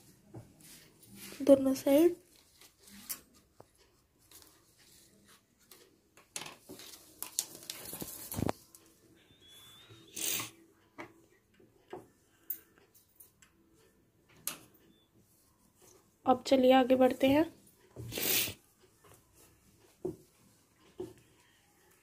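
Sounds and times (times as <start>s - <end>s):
chalk scraping on fabric: 18.0s - 18.6s.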